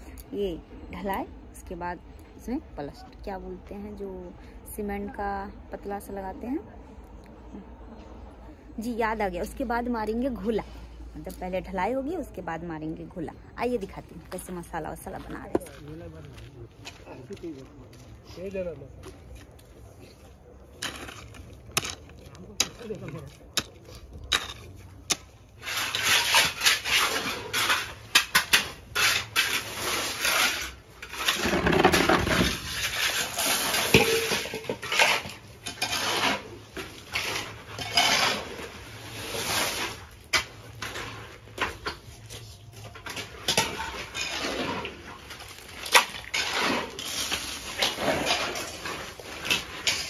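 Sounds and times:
shovels scraping wet concrete: 12.9s - 50.0s
metal mortar pans clanking: 20.8s - 39.0s, 39.6s - 50.0s.

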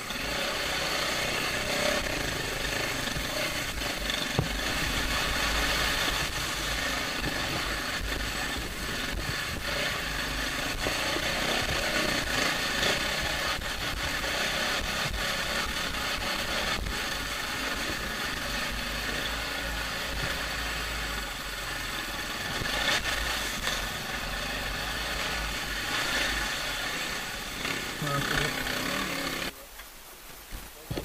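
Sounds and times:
dirt bike engine at low speed: 0.0s - 31.0s
microphone hiss: 0.0s - 31.0s
sharp knocks: 4.2s - 5.0s.

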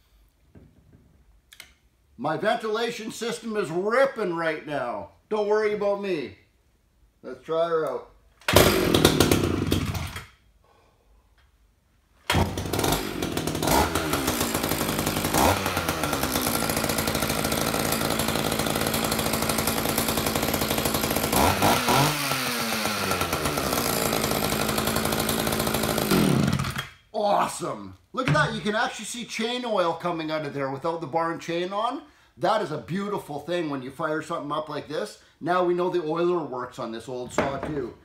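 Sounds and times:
chainsaw pull-starting: 8.4s - 10.4s, 12.2s - 27.0s
chainsaw running and revving: 8.5s - 10.2s, 12.3s - 26.9s.

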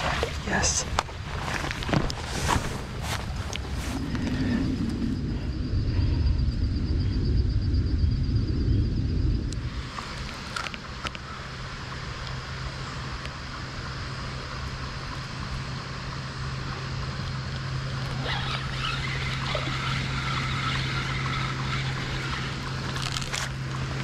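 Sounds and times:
water splashes: 0.0s - 1.4s
steady low rumble: 0.0s - 24.0s
fishing reel whirring: 9.5s - 24.0s.

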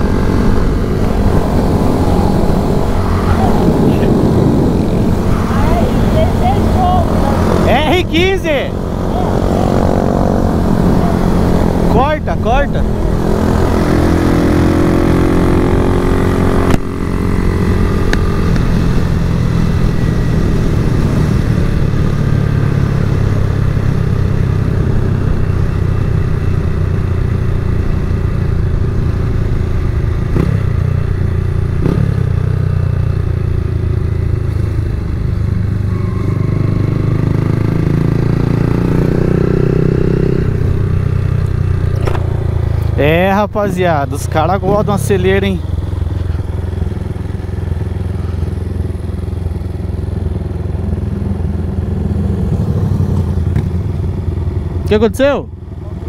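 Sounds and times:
wind rushing over microphone: 0.0s - 27.0s
motorcycle engine revving: 0.0s - 55.2s.

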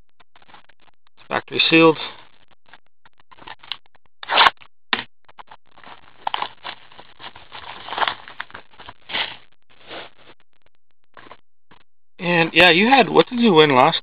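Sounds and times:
wrapper crinkling and scratching: 5.4s - 10.4s
shrink wrap ripping: 5.8s - 10.1s.

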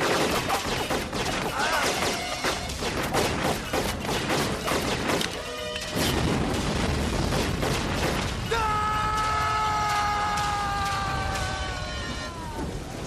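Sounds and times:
rapid gunshots: 0.0s - 5.4s, 6.0s - 8.5s
rumbling explosion: 6.0s - 13.0s.

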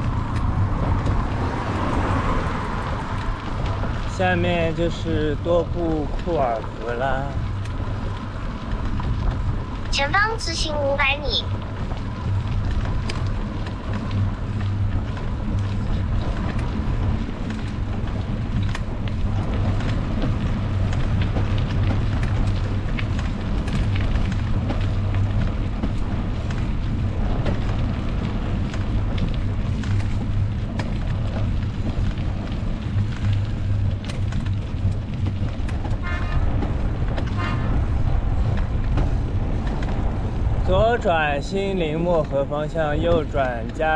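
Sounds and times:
wind on microphone: 0.0s - 10.1s
bicycle road noise: 0.0s - 43.9s.

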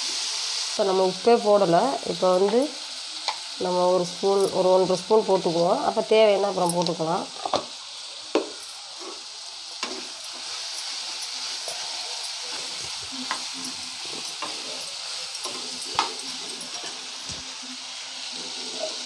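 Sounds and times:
meat sizzling in a pan: 0.0s - 19.0s
spatula scraping and tapping pan: 8.3s - 9.2s, 9.8s - 17.4s.

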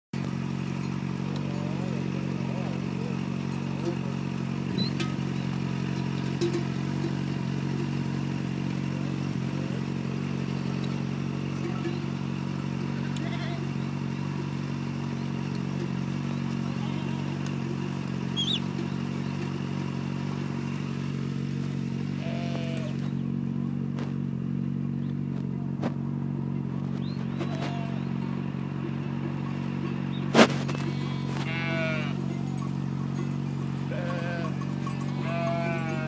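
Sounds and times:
motorcycle engine idling: 0.2s - 36.0s
sheep bleating: 1.3s - 5.0s, 12.8s - 14.1s, 16.2s - 17.7s, 22.0s - 23.4s, 27.3s - 28.3s, 30.7s - 36.0s.

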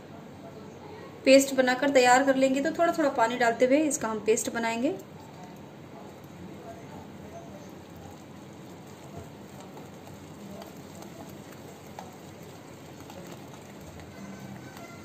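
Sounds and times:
whisk scraping wet paste: 5.0s - 15.0s.

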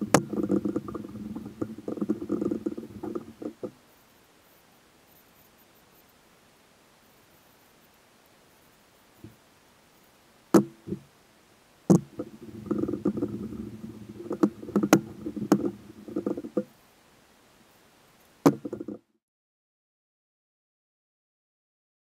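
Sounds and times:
wooden board knocking on plastic: 11.9s - 13.3s, 14.2s - 16.7s, 18.4s - 19.0s
rag rubbing wood: 11.9s - 16.7s.

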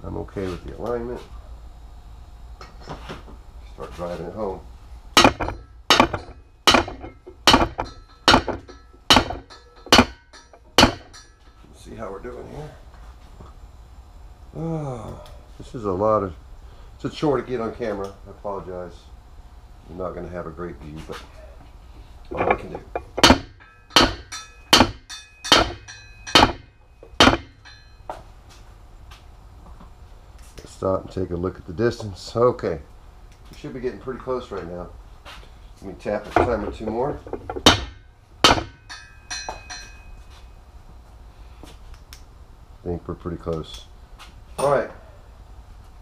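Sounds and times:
hammer striking metal tool: 5.2s - 11.5s, 22.3s - 28.1s, 37.4s - 40.1s.

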